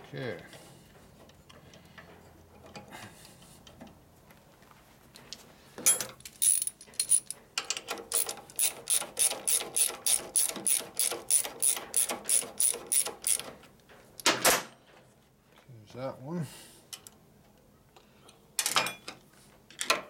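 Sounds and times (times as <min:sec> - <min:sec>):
ratchet wrench clicking: 0:08.1 - 0:13.5.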